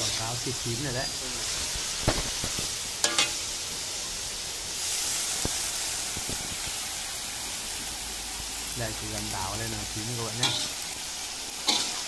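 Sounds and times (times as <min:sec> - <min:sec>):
food sizzling in a wok: 0:00.0 - 0:12.0
metal spatula clanking on wok: 0:03.0 - 0:03.4, 0:10.4 - 0:10.8, 0:11.6 - 0:12.0.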